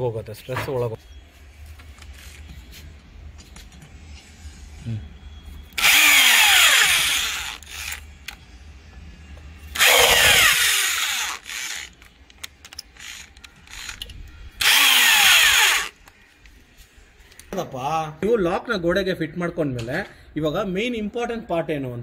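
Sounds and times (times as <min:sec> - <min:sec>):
electric drill driving screws: 0:05.8 - 0:08.0, 0:09.7 - 0:12.0, 0:14.6 - 0:16.0.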